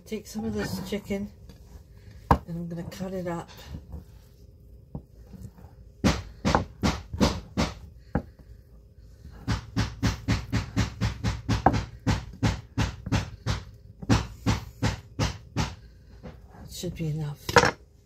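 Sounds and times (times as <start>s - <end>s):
knife chopping on wooden board: 6.0s - 8.4s, 9.2s - 16.4s.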